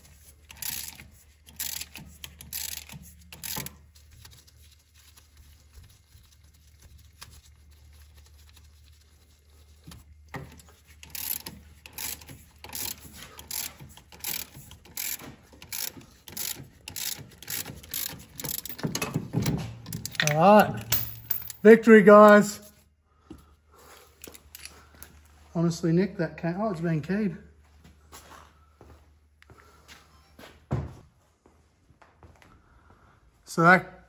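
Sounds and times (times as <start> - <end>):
puller being turned by hand: 0.0 - 3.8, 10.3 - 21.7.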